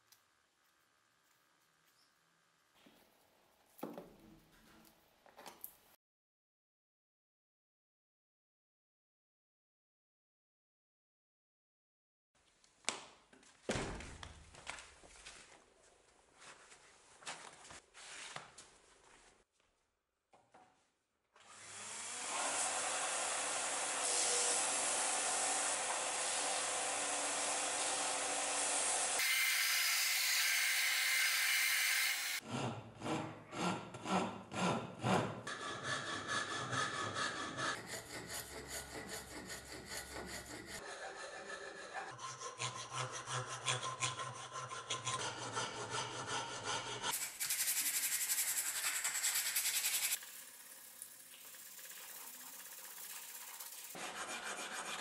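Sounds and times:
hand sawing and filing wood: 22.2s - 50.2s, 51.6s - 55.0s.

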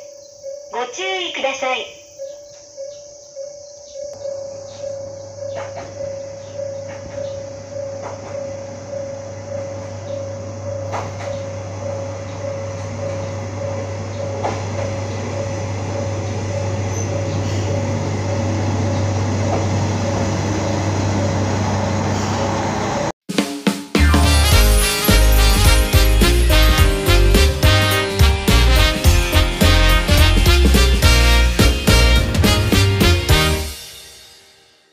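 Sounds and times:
pulsing single-pitched ringing: 2.0s - 20.4s
diesel railcar engine rumble: 5.0s - 23.1s, 24.4s - 33.8s.

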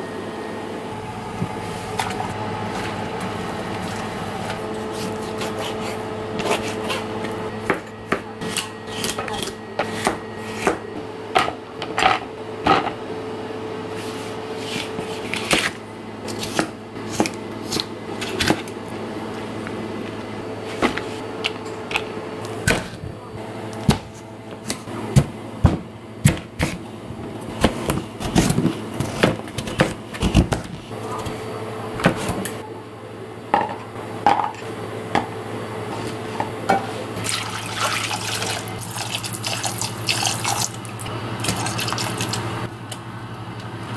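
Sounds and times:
steady low hum: 0.0s - 37.7s
water pouring into pot: 37.2s - 40.8s.

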